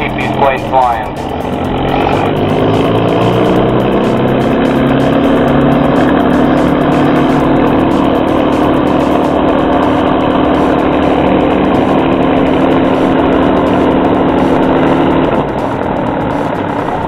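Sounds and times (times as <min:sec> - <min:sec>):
piston aircraft engine idling: 0:00.0 - 0:17.0.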